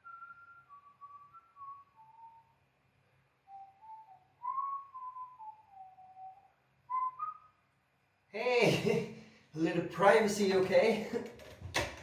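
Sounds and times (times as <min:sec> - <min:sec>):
person whistling a tune: 0:00.0 - 0:02.6, 0:03.4 - 0:07.6.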